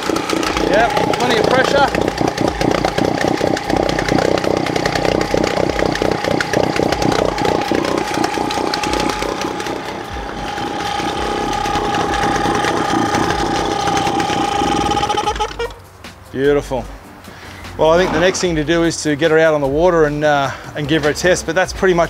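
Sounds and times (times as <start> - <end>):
two-stroke outboard motor running: 0.0 - 15.8.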